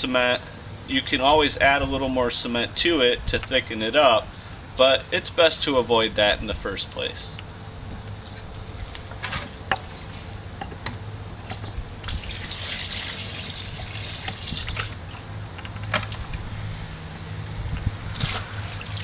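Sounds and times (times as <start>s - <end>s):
crickets chirping: 0.0s - 19.0s
water pouring and splashing: 12.0s - 15.0s, 18.1s - 19.0s.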